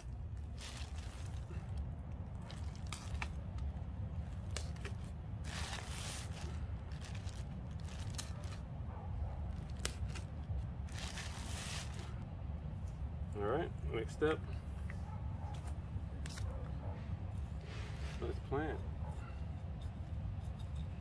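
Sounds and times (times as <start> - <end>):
plastic bag crinkling and tearing: 0.4 - 1.7, 2.4 - 3.6, 4.4 - 8.7, 9.6 - 12.2.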